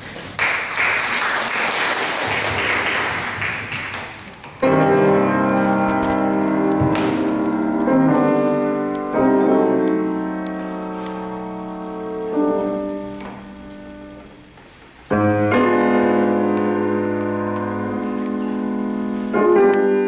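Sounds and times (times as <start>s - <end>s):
audience applauding: 0.0s - 4.4s
grand piano classical piece: 2.2s - 20.0s.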